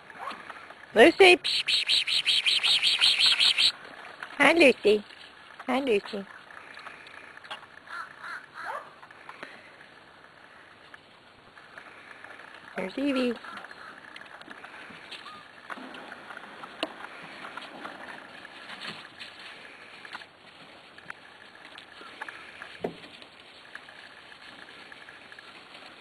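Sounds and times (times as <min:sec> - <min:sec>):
puppies scuffling and clicking: 0:11.6 - 0:26.0.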